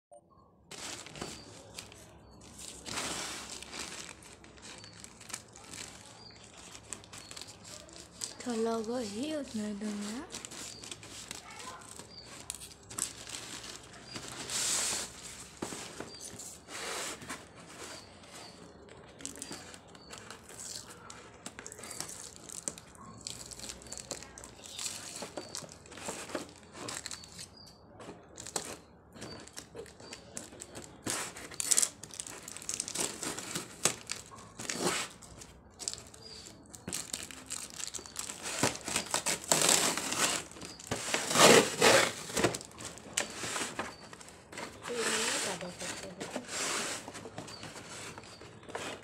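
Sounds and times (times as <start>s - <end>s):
cardboard parcel being torn open: 0.7s - 27.6s, 28.2s - 49.0s
plastic wrapping crinkling: 0.7s - 49.0s.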